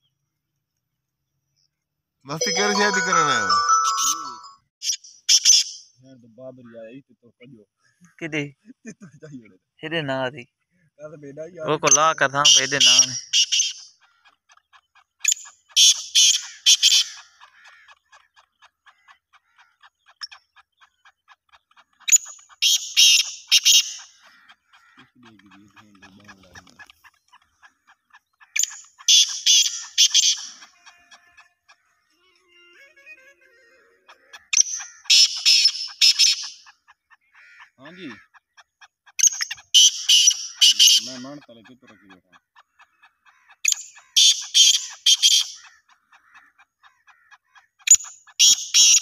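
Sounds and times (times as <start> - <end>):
bird calling harshly: 11.6 - 49.0.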